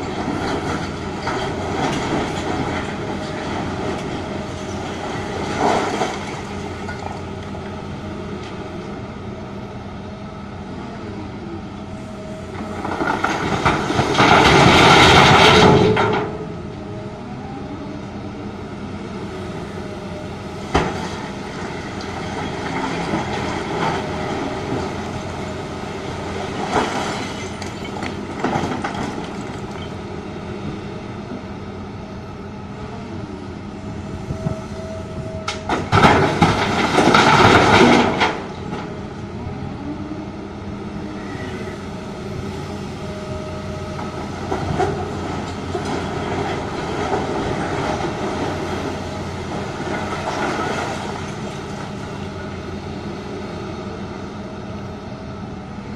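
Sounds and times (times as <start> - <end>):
heavy diesel engines running: 0.0 - 55.9
excavator hydraulics whining: 32.7 - 55.9.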